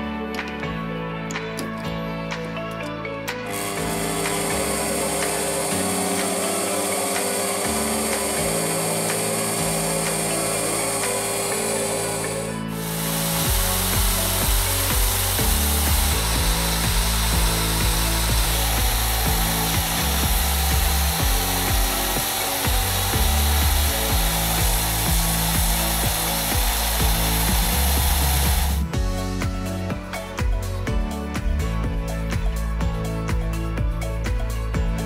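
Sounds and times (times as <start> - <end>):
background music with bass: 0.0 - 35.0
electric drill spinning: 3.5 - 29.0.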